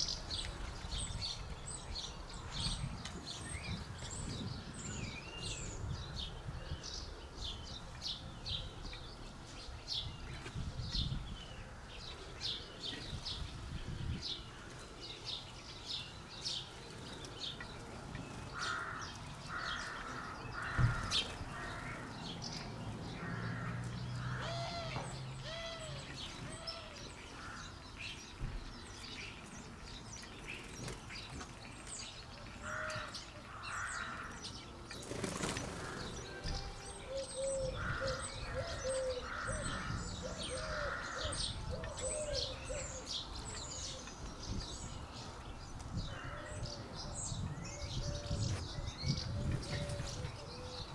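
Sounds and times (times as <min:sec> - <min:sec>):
small birds chirping: 0:00.0 - 0:50.9
crow cawing: 0:18.6 - 0:22.0.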